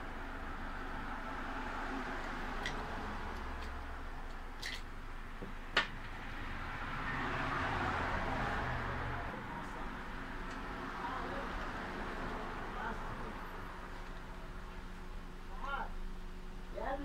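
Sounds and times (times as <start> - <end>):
workshop background noise: 1.9 - 6.3, 9.3 - 16.0.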